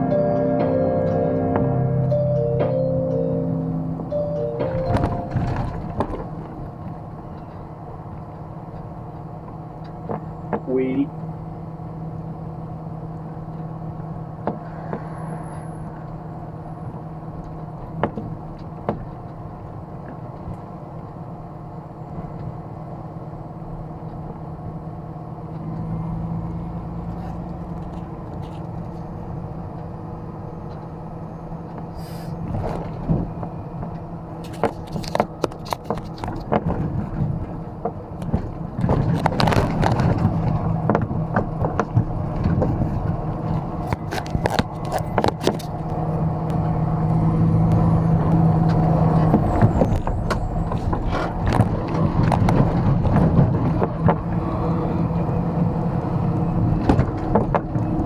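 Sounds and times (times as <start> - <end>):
truck engine hum: 0.0 - 58.0.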